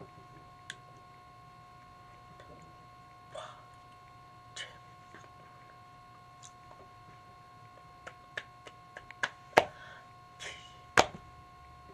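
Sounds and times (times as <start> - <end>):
faint electrical whine: 0.0 - 11.9.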